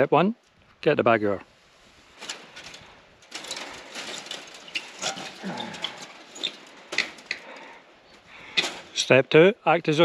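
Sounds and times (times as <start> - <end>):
rustling clothing and dry grass: 0.5 - 10.0
wire fence clicking and creaking: 2.1 - 9.2.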